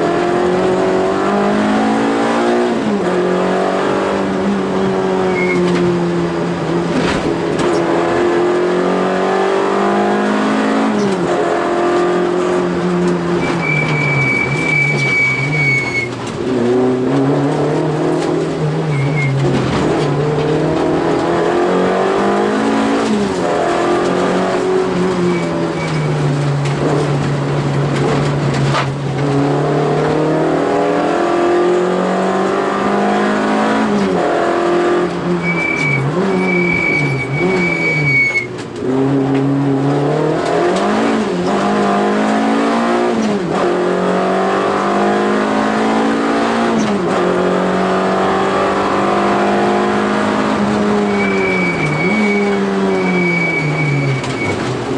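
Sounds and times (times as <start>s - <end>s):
rally car engine revving: 0.0s - 54.9s
high squeal: 5.2s - 5.7s, 13.4s - 16.2s, 18.9s - 19.4s, 25.1s - 26.2s, 35.4s - 38.5s, 50.9s - 54.7s.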